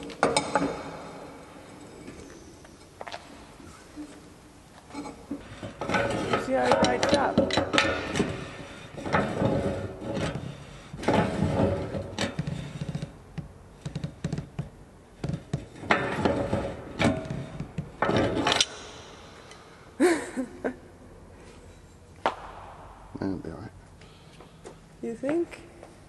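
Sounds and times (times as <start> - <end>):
wrench clanking and scraping metal: 0.0 - 3.0, 4.8 - 14.6, 15.2 - 18.8
person laughing: 20.0 - 21.0.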